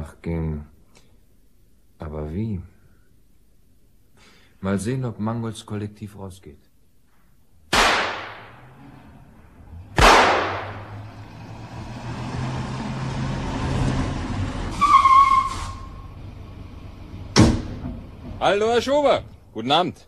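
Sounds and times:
low steady background: 0.0 - 20.0
shotgun shots echoing: 7.7 - 8.6, 10.0 - 11.0.

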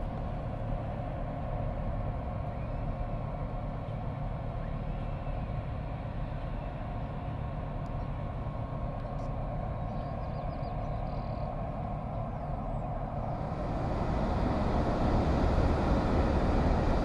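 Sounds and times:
low mechanical drone: 0.0 - 17.0
mid-pitched hum: 8.9 - 17.0.

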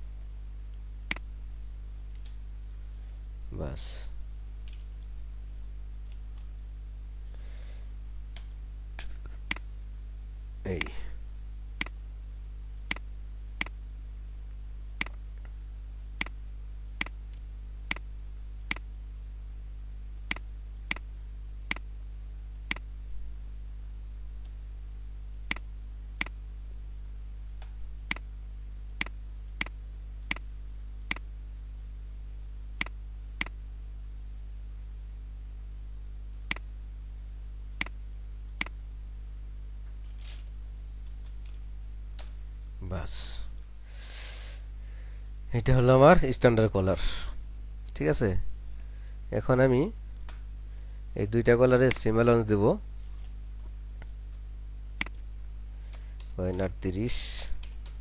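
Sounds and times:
steady low hum: 0.0 - 58.0
computer mouse clicks: 20.2 - 21.9.

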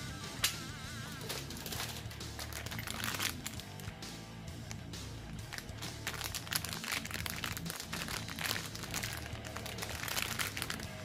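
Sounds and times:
plastic bag crinkling: 1.2 - 3.9, 5.5 - 11.0.

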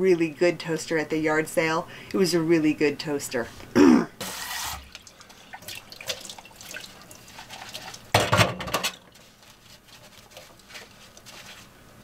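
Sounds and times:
dishes clattering: 8.1 - 9.1.

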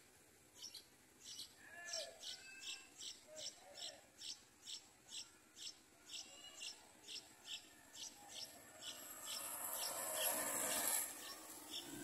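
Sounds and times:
broad rushing noise: 8.6 - 12.0.

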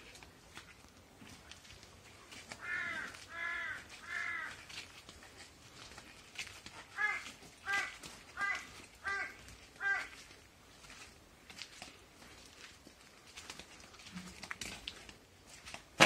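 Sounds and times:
crow cawing: 2.5 - 4.7, 6.9 - 10.3.

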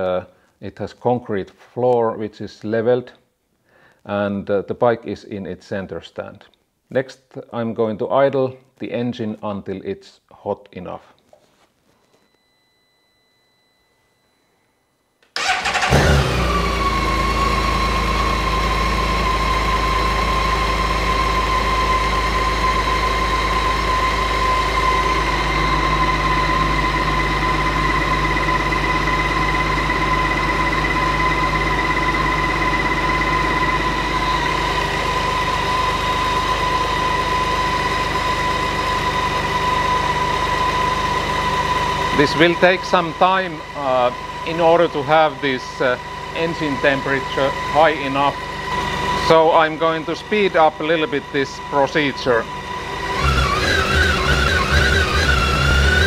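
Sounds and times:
motorcycle engine starting and idling: 15.4 - 56.0
high whine: 15.9 - 56.0.

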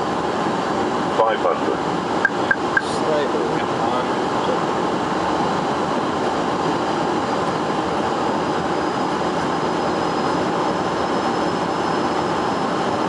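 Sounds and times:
cockpit airflow and engine drone: 0.0 - 13.0
faint high whine: 2.2 - 3.1.

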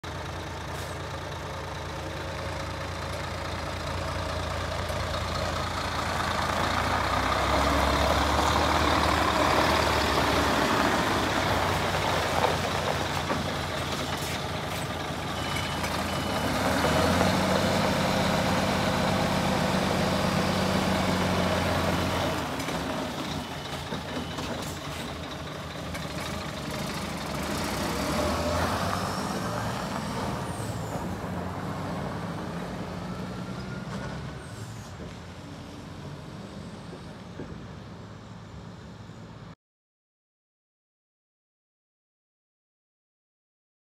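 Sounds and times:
truck diesel engine idling: 0.0 - 27.9.

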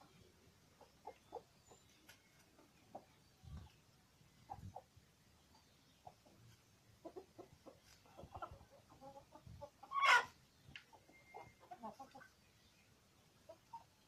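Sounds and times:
chickens clucking: 0.0 - 14.0
chicken squawk: 9.8 - 10.4.

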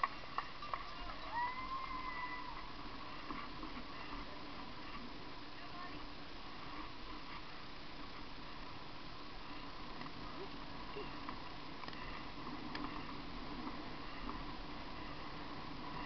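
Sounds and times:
bicycle rolling and wind noise: 0.0 - 16.0
faint ticks: 11.0 - 16.0.

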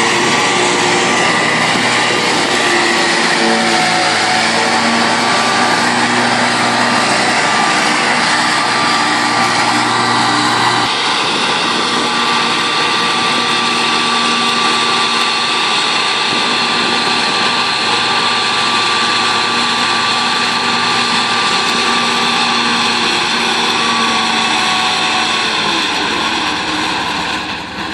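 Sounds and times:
mower whine: 0.0 - 27.9
tractor engine running: 0.0 - 27.9.

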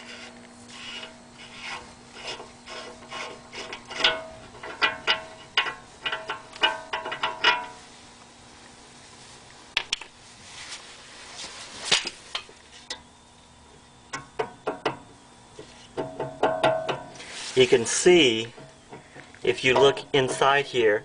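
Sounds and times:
metallic knocks of loose wheel hub: 3.8 - 7.8, 14.1 - 15.0, 16.0 - 17.2.

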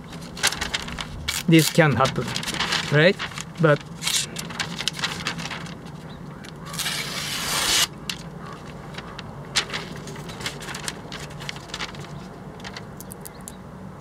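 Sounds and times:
paper crackling and rustling: 0.0 - 13.3
knife slicing newspaper: 6.6 - 8.3.

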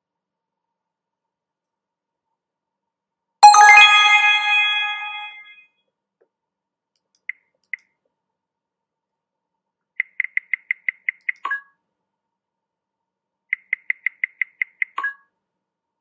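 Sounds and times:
electronic two-note chime: 3.4 - 5.5
short high blips: 3.4 - 5.5.

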